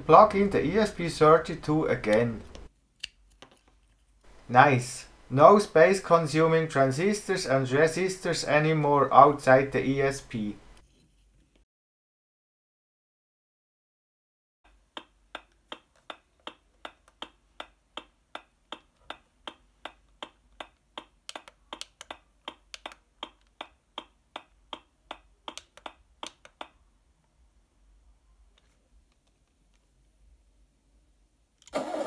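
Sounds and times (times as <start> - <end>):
regular sharp clicks: 1.6 - 4.5, 14.7 - 26.9.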